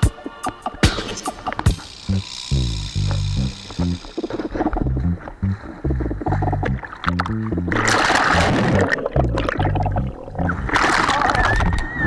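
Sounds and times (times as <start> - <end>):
background music with bass line: 0.0 - 10.8
surf water splashing: 6.8 - 9.6, 10.6 - 12.0.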